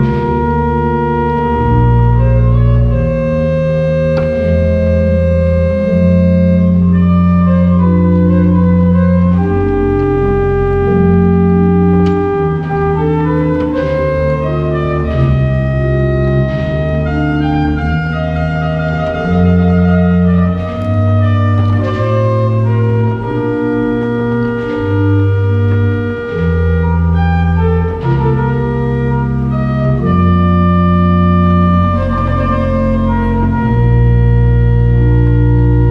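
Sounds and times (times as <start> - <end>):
pipe organ chords: 0.0 - 35.9.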